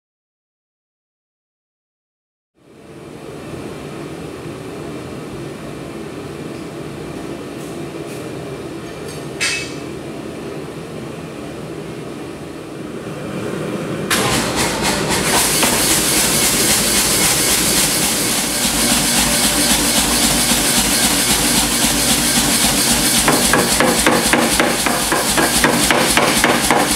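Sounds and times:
metallic clank: 9.1s - 9.9s
gas forge hissing: 14.1s - 26.9s.

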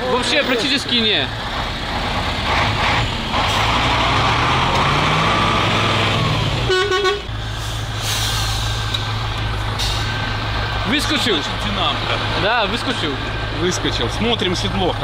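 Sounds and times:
diesel truck engine revving: 0.0s - 15.0s
truck horn toot: 6.6s - 7.4s.

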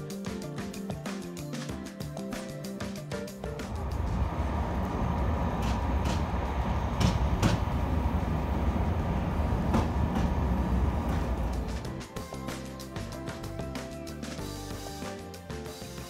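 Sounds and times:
wheels clacking: 3.6s - 11.9s
train rumbling on track: 3.6s - 12.0s.

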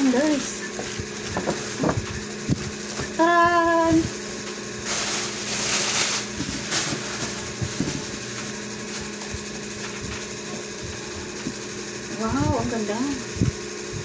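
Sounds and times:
steady low hum: 0.0s - 14.0s
tissue paper and plastic rustling: 4.4s - 10.3s.

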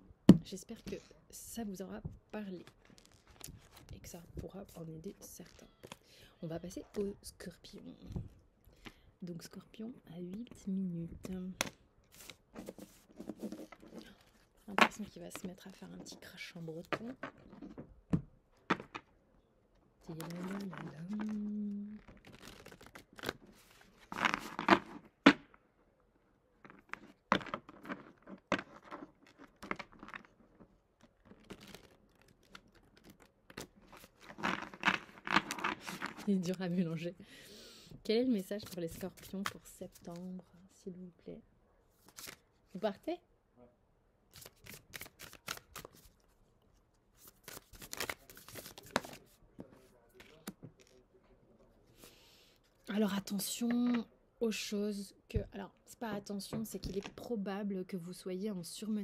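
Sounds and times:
cards shuffling: 2.6s - 3.9s, 11.6s - 16.0s, 20.2s - 25.1s, 31.0s - 36.6s, 38.5s - 40.3s, 42.0s - 42.4s, 44.3s - 46.4s, 47.2s - 50.9s.

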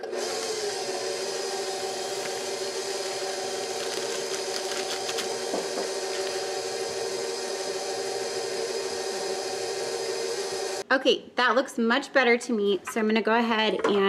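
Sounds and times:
stand mixer motor hum: 0.0s - 10.8s.

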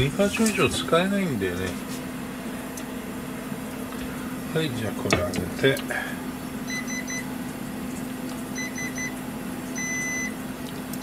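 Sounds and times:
steady low hum: 0.0s - 11.0s
cooktop control panel beeping: 6.7s - 7.3s, 8.6s - 9.2s, 9.8s - 10.4s.

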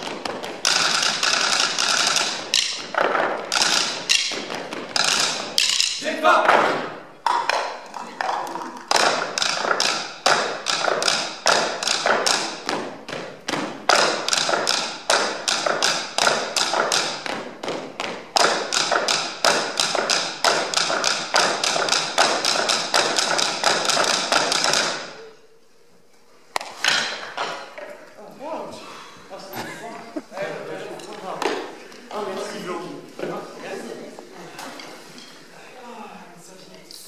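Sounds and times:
drumsticks tapping tabletops: 0.0s - 25.2s.

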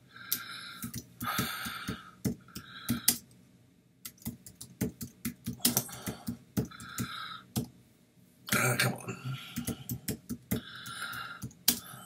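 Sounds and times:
computer keyboard typing: 0.8s - 3.2s, 4.0s - 7.7s.

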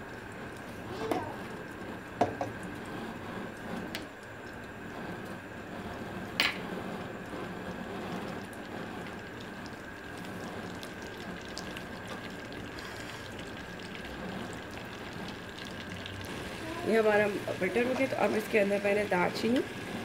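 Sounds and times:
butter sizzling in a pot: 9.9s - 20.0s.

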